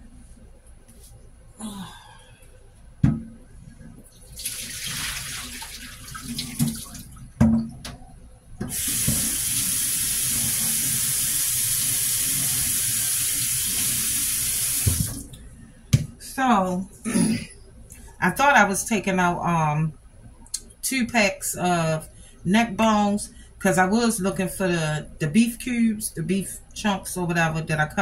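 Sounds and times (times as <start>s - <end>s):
tap water running into sink: 4.2s - 8.0s, 8.6s - 15.3s.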